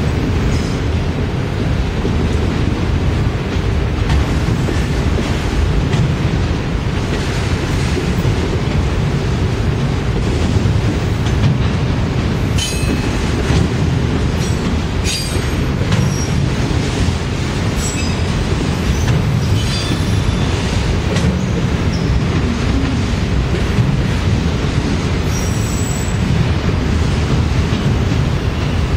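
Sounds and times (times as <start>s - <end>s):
train wheels rumbling on rail: 0.0s - 28.9s.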